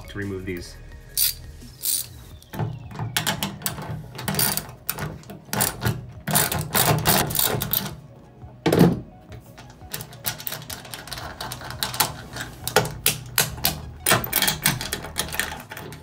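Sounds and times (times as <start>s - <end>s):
hand ratchet clicking: 1.1s - 2.5s, 3.2s - 7.9s, 9.9s - 16.0s.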